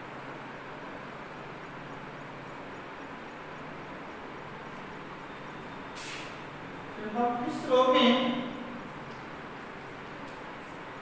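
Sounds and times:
steady hiss: 0:05.9 - 0:11.0.

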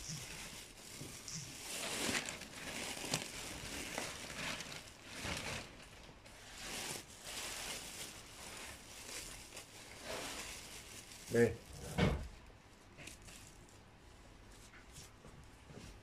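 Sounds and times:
rustling of wood-shaving bedding: 0:00.0 - 0:11.8.

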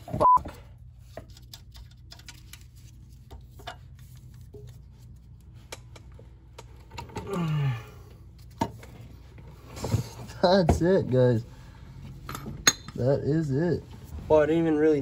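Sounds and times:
person grunting with effort: 0:07.2 - 0:08.1.

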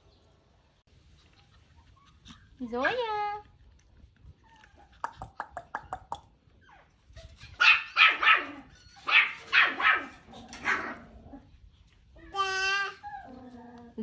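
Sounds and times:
dog barking: 0:07.6 - 0:11.0.

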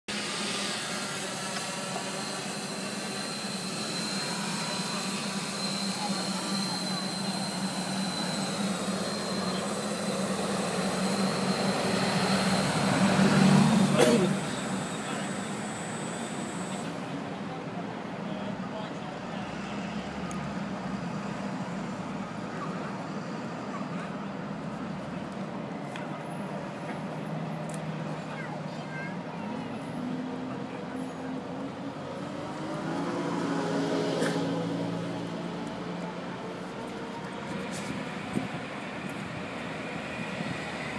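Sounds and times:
outdoor noise: 0:00.0 - 0:40.9
drone propeller hum: 0:00.1 - 0:17.3
thin high whine: 0:00.1 - 0:17.3.

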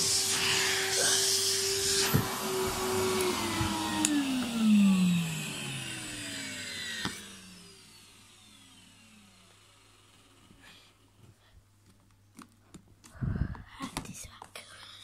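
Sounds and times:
vacuum cleaner motor whining: 0:00.0 - 0:11.2.

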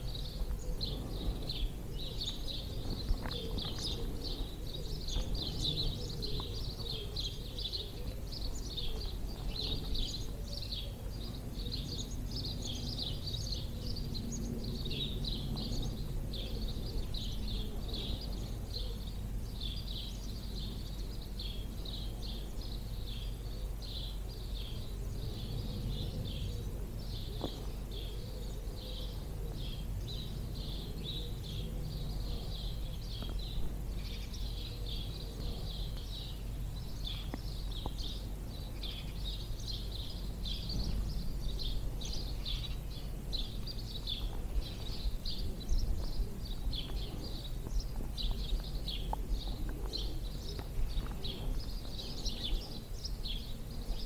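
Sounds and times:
songbirds singing: 0:00.0 - 0:54.0
wind rumble on microphone: 0:00.0 - 0:54.0.

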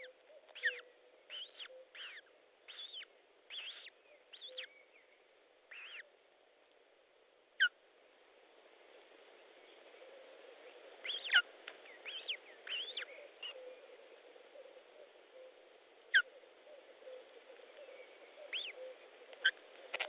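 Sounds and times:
osprey whistled chirps: 0:00.0 - 0:04.9, 0:11.0 - 0:11.4, 0:12.0 - 0:13.8
steady hiss: 0:00.0 - 0:20.0.

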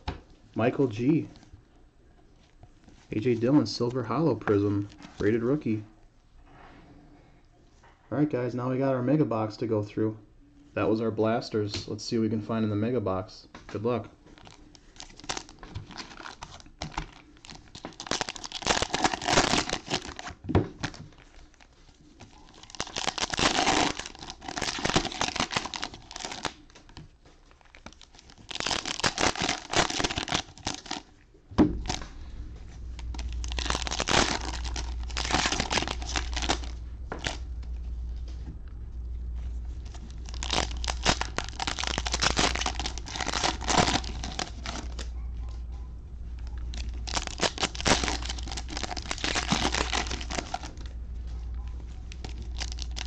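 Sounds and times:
steady low hum: 0:13.9 - 0:53.0
foil wrappers tearing and crinkling: 0:14.4 - 0:26.8, 0:27.5 - 0:31.1, 0:33.0 - 0:37.4, 0:39.8 - 0:45.1, 0:46.6 - 0:51.0, 0:52.0 - 0:53.0.

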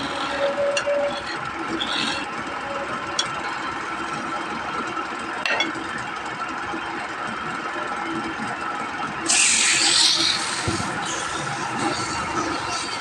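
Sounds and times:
wood lathe motor running: 0:00.0 - 0:05.4, 0:06.0 - 0:13.0
sandpaper hissing on spinning wood: 0:09.3 - 0:13.0.

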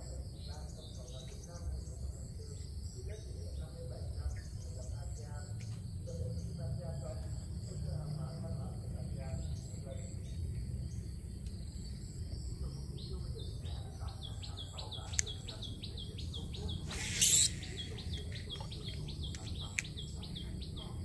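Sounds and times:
bird chirping: 0:09.2 - 0:21.0
sharp click: 0:15.0 - 0:15.6, 0:16.9 - 0:20.1.

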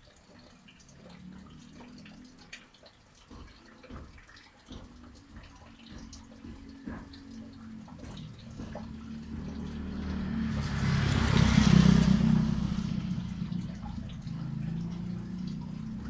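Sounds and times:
vehicle engine hum: 0:04.7 - 0:16.0
tyres hissing on wet road: 0:08.9 - 0:16.0.

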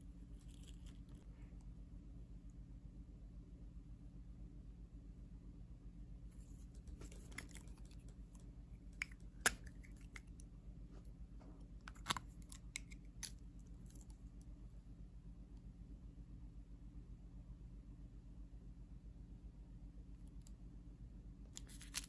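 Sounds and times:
steady low hum: 0:00.0 - 0:22.0
small objects clicking and tapping: 0:06.4 - 0:10.4, 0:11.9 - 0:14.2, 0:21.6 - 0:22.0.

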